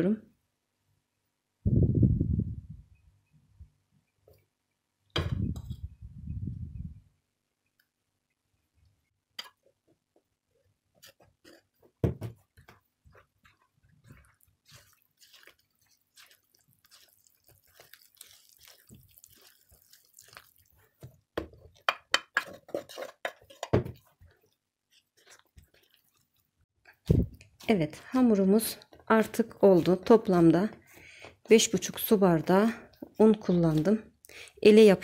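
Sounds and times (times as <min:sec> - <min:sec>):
spatula stirring sticky dough: 0:09.4 - 0:35.0
spatula knocking against bowl: 0:21.4 - 0:22.6.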